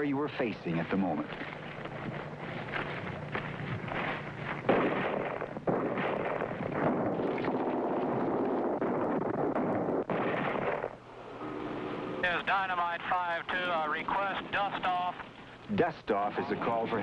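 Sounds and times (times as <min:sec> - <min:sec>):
gunfire: 0:04.6 - 0:11.0
loud blast: 0:04.7 - 0:10.9.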